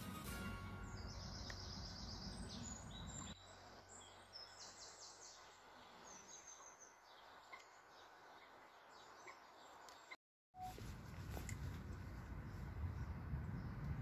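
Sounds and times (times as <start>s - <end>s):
songbirds trilling and chirping: 0.5s - 10.2s.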